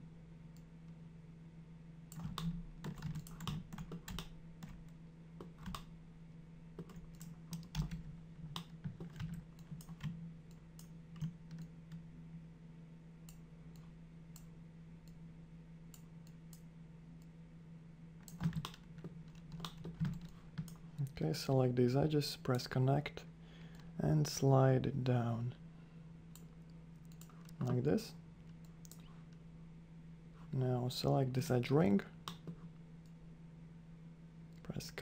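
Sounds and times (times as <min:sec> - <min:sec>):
steady low hum: 0:00.0 - 0:35.0
computer keyboard and mouse clicks: 0:02.1 - 0:05.9, 0:06.8 - 0:11.7, 0:18.2 - 0:20.8.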